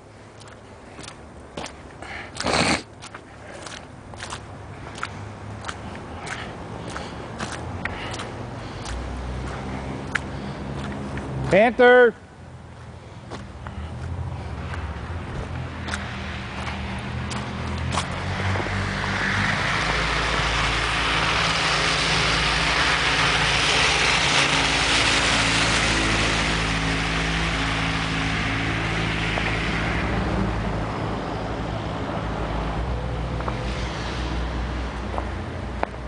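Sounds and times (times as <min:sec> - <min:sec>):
truck engine hum: 0:00.0 - 0:36.0
tyre hiss on wet road: 0:18.4 - 0:30.0, 0:33.5 - 0:35.4.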